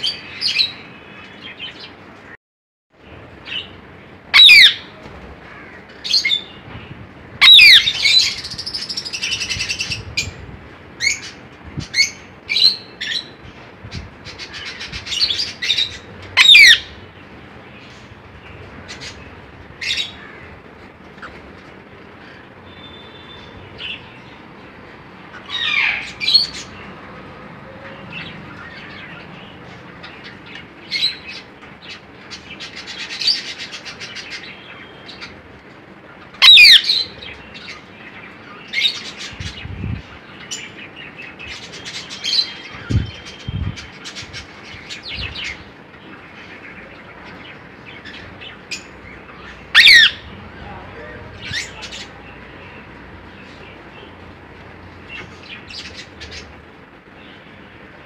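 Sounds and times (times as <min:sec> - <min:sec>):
loud shrill bird calls: 0:04.3 - 0:04.9, 0:07.4 - 0:10.0, 0:14.4 - 0:17.0, 0:36.4 - 0:37.8, 0:48.0 - 0:50.4
rapid bird chatter: 0:36.1 - 0:57.9
cockatiels chirping and calling: 0:48.7 - 0:50.3.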